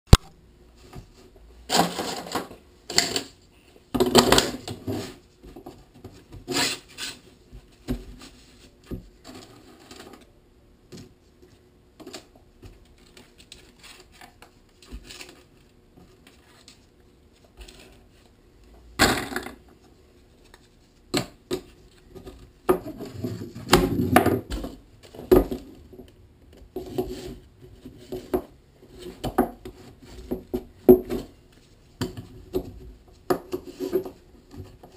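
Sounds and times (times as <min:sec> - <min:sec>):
knocks and clatter on workbench: 0:21.1 - 0:25.7, 0:28.0 - 0:28.5, 0:32.0 - 0:34.9.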